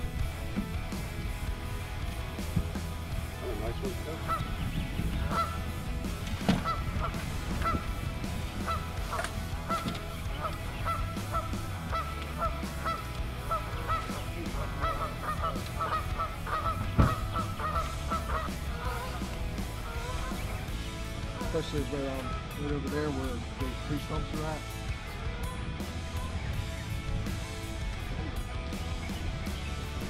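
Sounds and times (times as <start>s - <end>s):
geese honking: 3.2s - 22.6s
loud thump: 16.9s - 17.3s.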